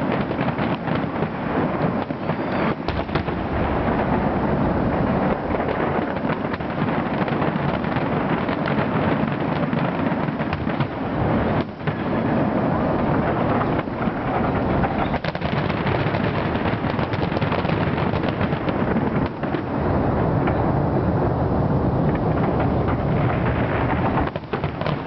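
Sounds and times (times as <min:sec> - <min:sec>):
fireworks shells bursting: 0:00.0 - 0:03.7.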